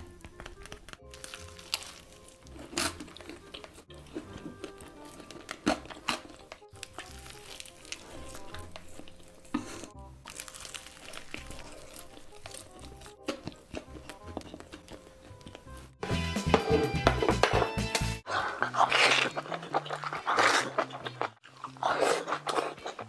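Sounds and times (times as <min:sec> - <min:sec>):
chewing: 0:00.0 - 0:16.0, 0:18.3 - 0:23.0
crunching fried chicken: 0:00.0 - 0:16.0, 0:18.3 - 0:23.0
soft background music: 0:00.0 - 0:23.0.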